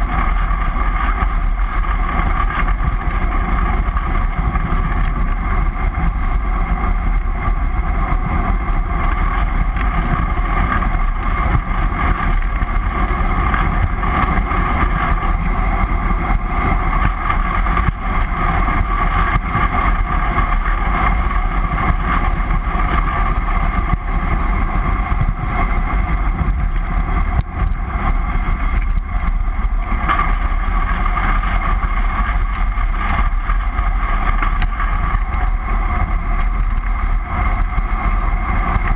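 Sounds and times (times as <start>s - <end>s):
tyre and road noise: 0.0s - 38.9s.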